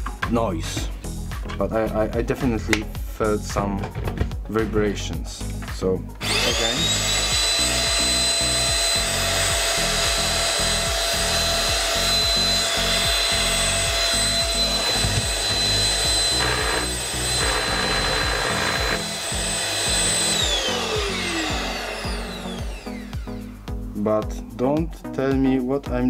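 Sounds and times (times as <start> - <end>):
handheld vacuum cleaner whining: 6.2 - 23.7.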